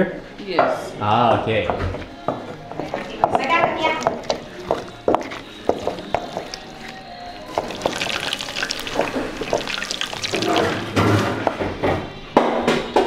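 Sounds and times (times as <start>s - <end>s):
pestle grinding wet mash: 2.7s - 11.6s.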